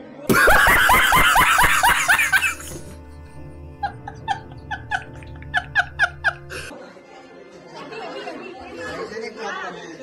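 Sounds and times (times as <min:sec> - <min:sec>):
background music: 0:00.0 - 0:10.0
man laughing hard: 0:00.3 - 0:03.0, 0:03.8 - 0:06.7.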